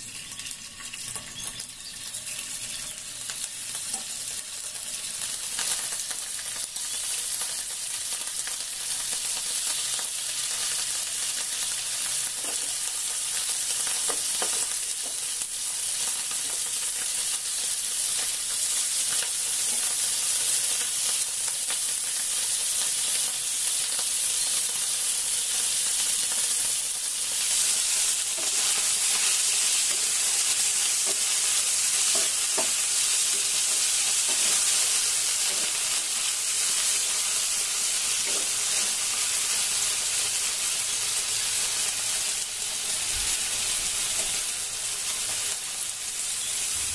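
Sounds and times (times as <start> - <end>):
meat sizzling in a frying pan: 0.0 - 46.9.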